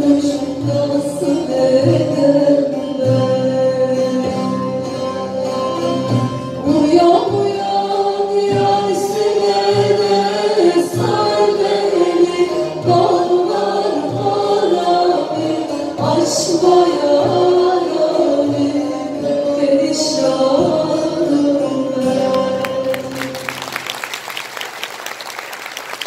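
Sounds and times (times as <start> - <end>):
mixed choir singing: 0.0 - 3.7, 6.6 - 23.7
woman singing into a microphone: 0.0 - 6.0, 6.6 - 23.5
plucked lute accompaniment: 0.0 - 23.8.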